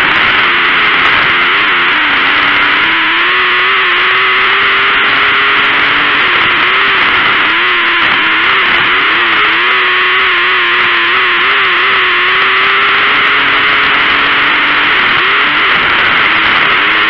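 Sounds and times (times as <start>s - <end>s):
racing car engine: 0.0s - 17.0s.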